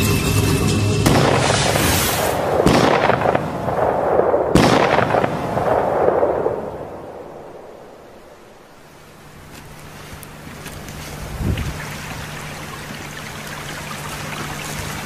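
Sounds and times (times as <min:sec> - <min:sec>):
rifle shots with rolling echo: 0:01.0 - 0:08.9.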